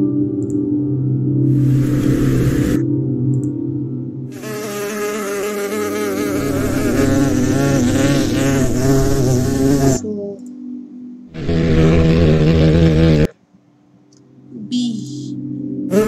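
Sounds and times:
bee buzzing in flight: 4.4s - 10.0s, 11.4s - 13.3s.

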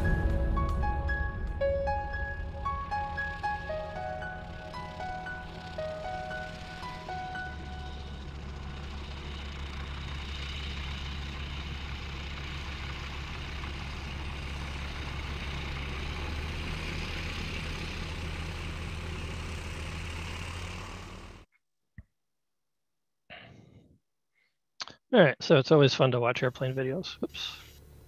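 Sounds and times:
light airplane engine and propeller: 0.0s - 21.4s.

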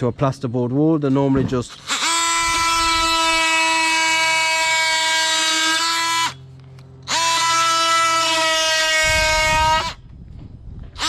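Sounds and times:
oscillating multi-tool whining: 1.7s - 10.1s.

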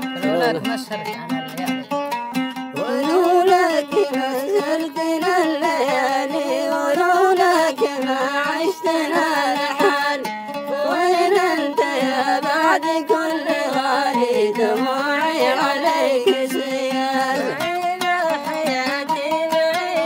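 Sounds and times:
plucked strings: 0.0s - 20.0s
man singing: 2.8s - 6.8s, 12.7s - 20.0s.

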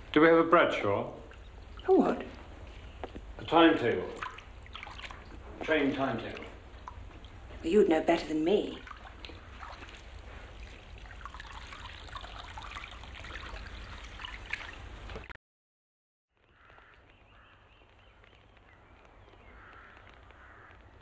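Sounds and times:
bathwater splashing: 0.0s - 15.3s.

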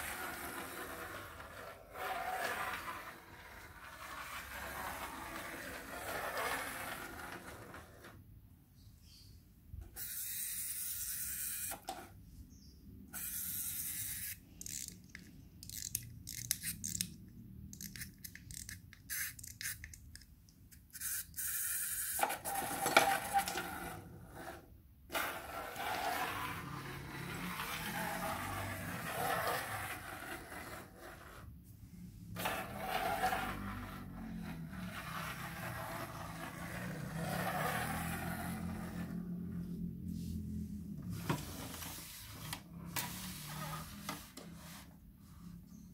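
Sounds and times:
plastic toy train scraping on track: 0.0s - 8.2s, 21.0s - 31.5s, 32.3s - 39.5s, 41.4s - 44.9s.

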